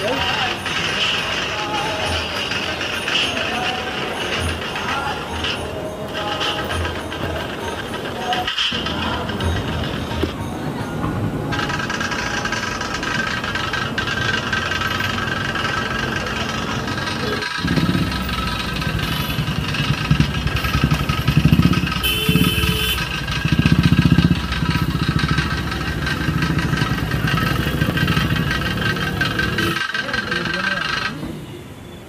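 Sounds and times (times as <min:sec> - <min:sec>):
pulsing engine throb: 0:00.0 - 0:31.2
machine hum: 0:11.1 - 0:29.8.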